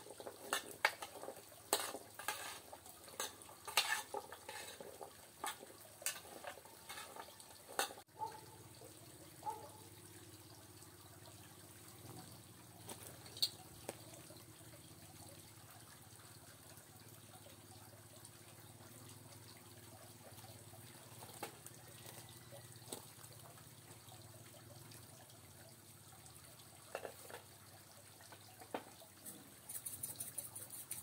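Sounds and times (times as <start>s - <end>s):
utensil clinking against cookware: 0.2s - 8.0s.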